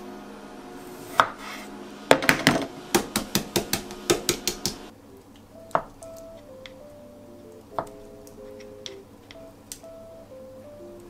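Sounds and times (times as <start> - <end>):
knife chopping on wooden board: 1.1 - 1.5, 2.1 - 4.9.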